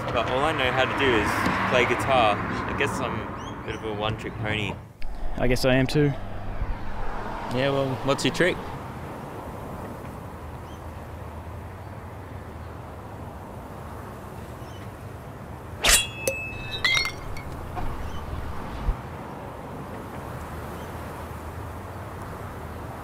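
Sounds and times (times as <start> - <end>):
sword ringing: 15.8 - 17.7
faint metallic clinks: 15.8 - 17.8.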